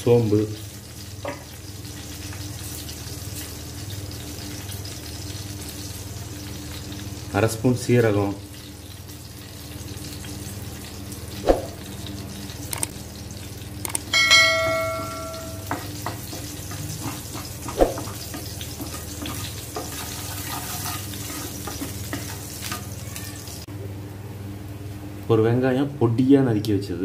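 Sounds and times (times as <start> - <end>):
bell-like ding: 14.1 - 15.7
spoon knocking on pan: 14.1 - 19.9
spoon stirring in pan: 14.8 - 23.0
seeds sizzling in hot oil: 15.3 - 23.7.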